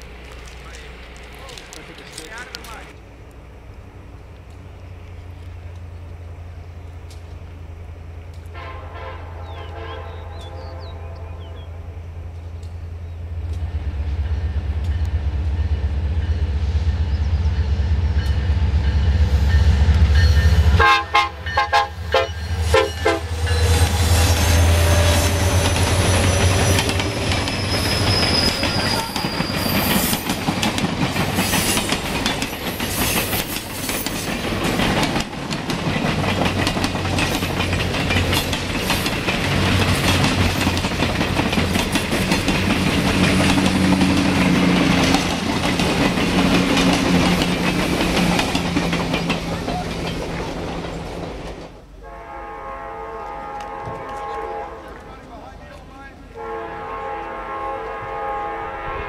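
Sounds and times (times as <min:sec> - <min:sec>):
locomotive engine rumble: 0:00.0 - 0:59.0
train horn tones: 0:08.4 - 0:12.1, 0:17.7 - 0:30.2, 0:52.0 - 0:55.3, 0:56.3 - 0:59.0
high wheel squeal: 0:22.2 - 0:30.4
wheel clatter over rail joints: 0:25.3 - 0:51.8.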